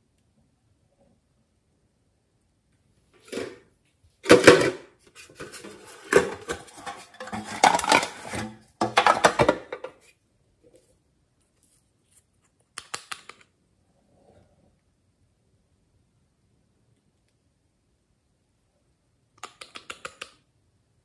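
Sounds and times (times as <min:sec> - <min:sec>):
tin box clanking and rattling: 0:05.4 - 0:09.8.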